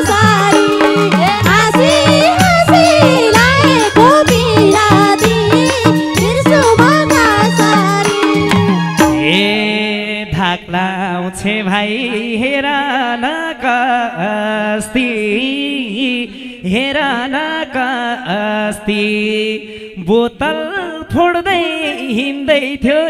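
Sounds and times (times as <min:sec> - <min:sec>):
instrumental accompaniment: 0:00.0 - 0:10.1
man singing wavering vocal: 0:09.1 - 0:23.0.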